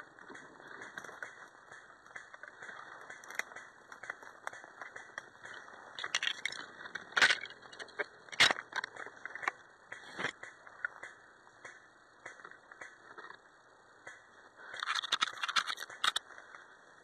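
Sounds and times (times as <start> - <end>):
sharp cracks: 0.0 - 16.6
rattles of carried gear: 2.3 - 9.5, 14.7 - 16.2.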